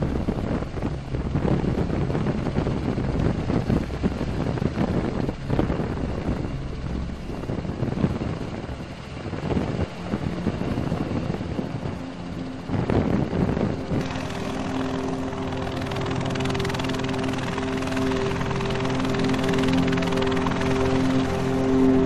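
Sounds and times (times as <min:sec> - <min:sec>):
rushing noise: 0:00.0 - 0:22.0
held music notes: 0:00.6 - 0:22.0.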